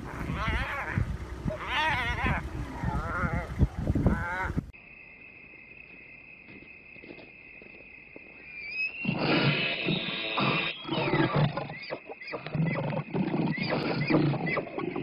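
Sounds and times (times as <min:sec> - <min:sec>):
hyena squealing calls: 0:00.0 - 0:04.6, 0:08.5 - 0:14.9
rough animal calls and growls: 0:00.0 - 0:04.7, 0:08.5 - 0:15.0
high insect chirp: 0:04.7 - 0:15.0.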